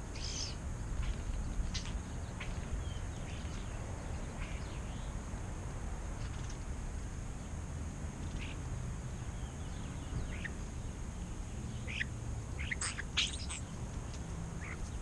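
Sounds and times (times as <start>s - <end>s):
starlings chirping: 0.0s - 5.3s, 7.4s - 15.0s.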